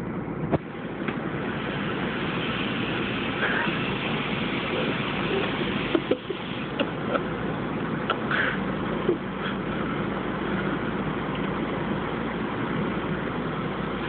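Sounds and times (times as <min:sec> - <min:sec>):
bus engine idling: 0:00.0 - 0:14.0.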